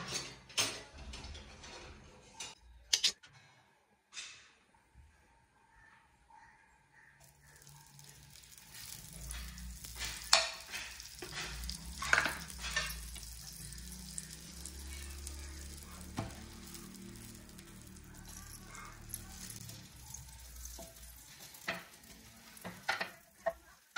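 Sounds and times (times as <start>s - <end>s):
butter sizzling in a pan: 7.2s - 23.9s
utensil clattering on pan: 7.6s - 23.9s.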